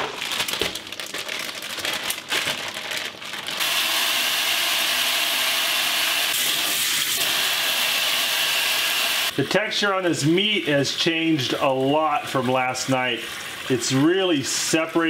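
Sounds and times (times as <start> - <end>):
plastic bag crinkling: 0.0 - 3.7.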